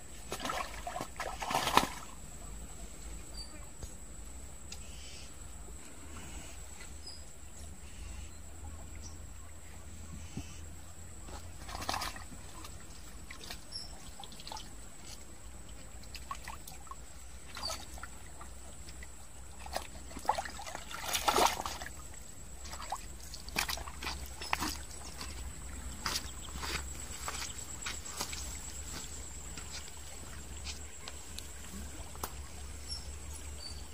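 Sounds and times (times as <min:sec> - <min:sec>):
shallow water trickling and sloshing: 0:00.0 - 0:03.6, 0:10.6 - 0:33.9
water splashing: 0:00.2 - 0:02.2, 0:11.3 - 0:30.5.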